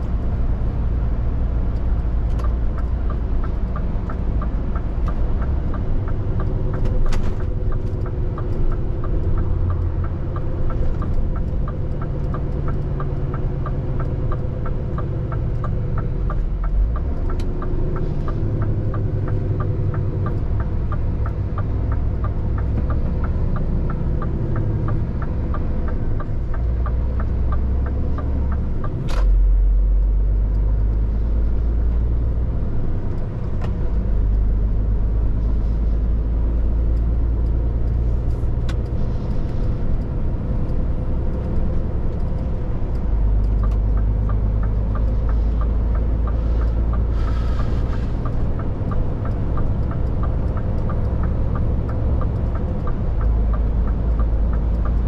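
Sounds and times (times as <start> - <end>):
diesel lorry and road rumble: 0.0 - 55.0
indicator ticking: 1.7 - 29.0, 36.1 - 55.0
sharp click: 28.0 - 29.4.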